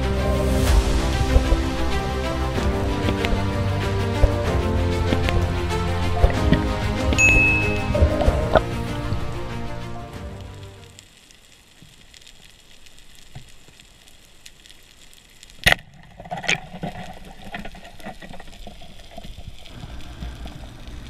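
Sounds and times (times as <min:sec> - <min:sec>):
music: 0:00.0 - 0:11.0
faint crackling: 0:00.0 - 0:21.0.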